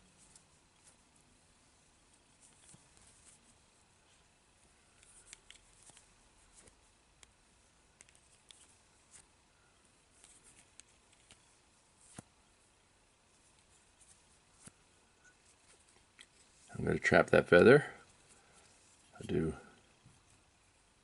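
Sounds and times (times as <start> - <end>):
small clicks of tying tools: 4.9 - 7.4, 13.5 - 16.7.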